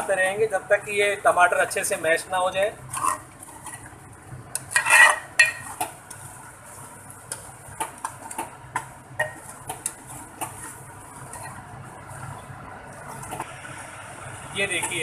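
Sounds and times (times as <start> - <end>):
spoon scraping metal pot: 2.9 - 3.9, 4.6 - 5.8, 9.2 - 11.7.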